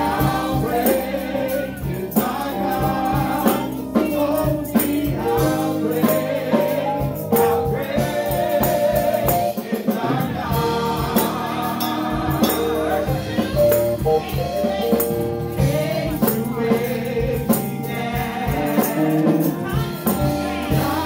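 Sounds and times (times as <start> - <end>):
backing singers: 0.0 - 21.0
instrumental accompaniment with beat: 0.0 - 21.0
woman singing lead: 11.0 - 21.0.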